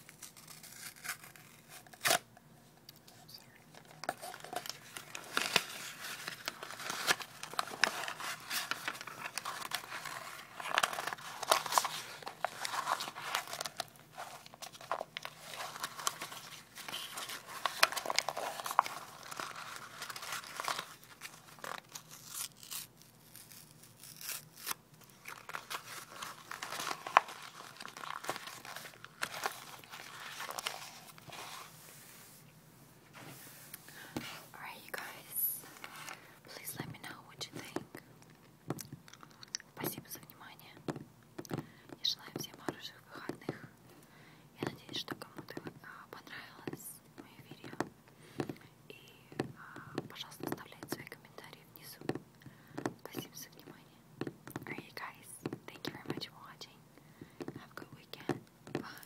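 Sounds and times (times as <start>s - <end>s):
tissue paper tearing and crumpling: 0.0s - 2.3s, 4.1s - 32.2s.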